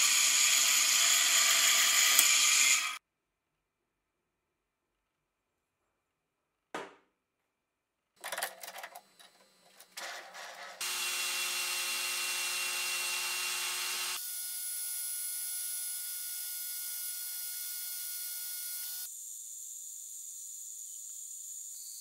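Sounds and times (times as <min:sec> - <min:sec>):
lathe running with whine: 0:00.0 - 0:03.0, 0:10.4 - 0:14.2.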